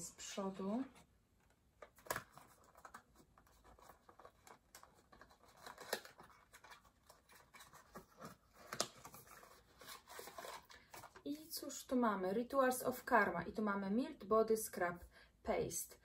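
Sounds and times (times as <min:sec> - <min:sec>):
cardboard scraping and rustling: 0:02.3 - 0:11.2.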